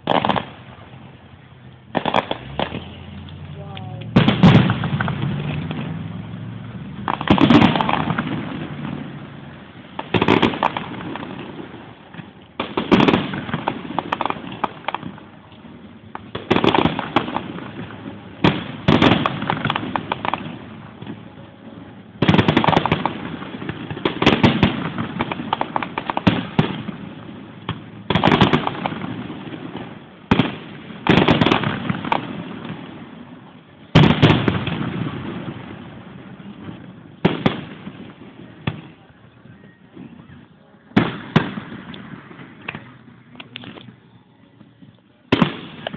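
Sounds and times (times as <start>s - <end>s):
fireworks bursting: 0.0s - 45.9s.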